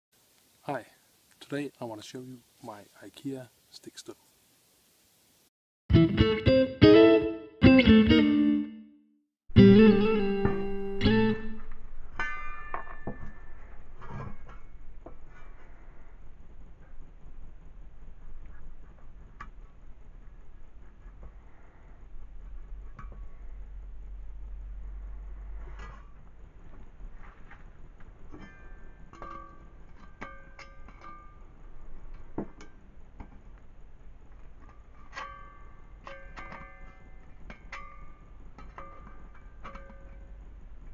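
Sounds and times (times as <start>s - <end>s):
plucked guitar music: 5.9s - 11.7s.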